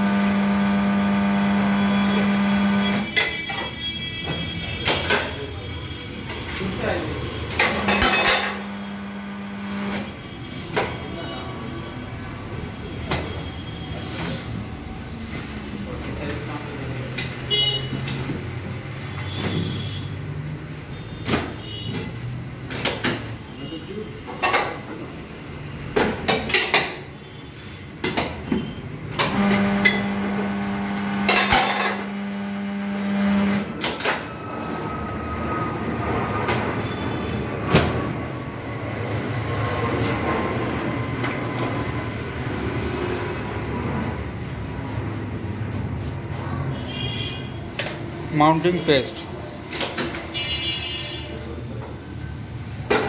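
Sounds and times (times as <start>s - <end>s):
turntable motor humming: 0.0s - 3.0s, 8.6s - 9.9s, 29.2s - 33.7s.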